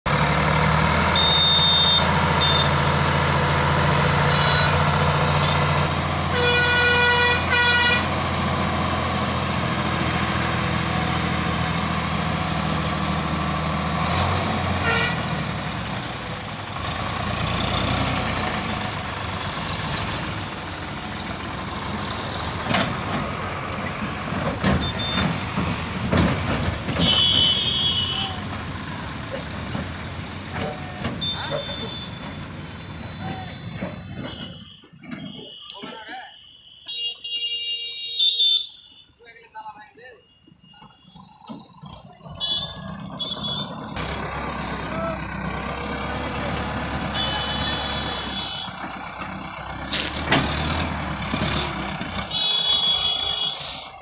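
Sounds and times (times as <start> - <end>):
tractor diesel engine running: 0.0 - 34.8, 40.6 - 54.0
horn honking: 1.0 - 3.0, 4.2 - 8.6, 14.1 - 15.5, 24.6 - 25.6, 26.9 - 28.6, 30.6 - 39.4, 40.1 - 44.0, 46.0 - 50.3, 51.4 - 54.0.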